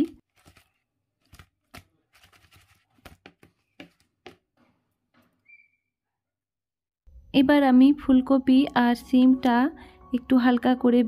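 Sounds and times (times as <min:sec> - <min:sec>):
fish pieces slapping in plastic bowl: 0:00.3 - 0:04.4.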